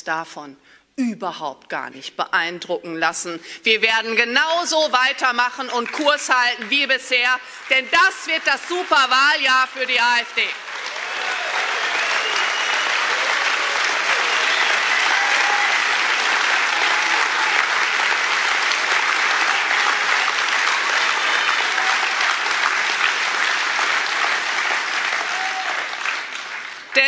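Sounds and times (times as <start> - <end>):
audience applauding: 5.7 - 27.0.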